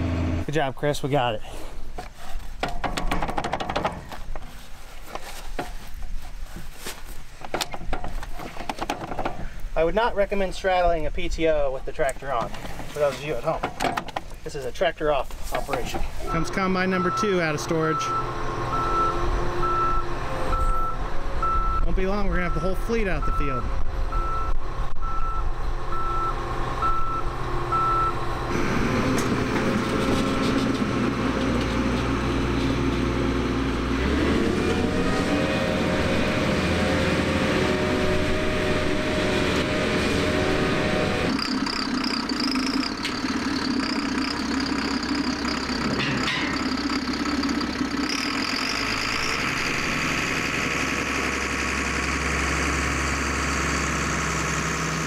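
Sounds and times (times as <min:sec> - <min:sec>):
combine engine running: 0:00.0 - 0:00.5, 0:27.3 - 0:55.0
backup alarm beeping: 0:16.2 - 0:21.8, 0:24.1 - 0:28.2.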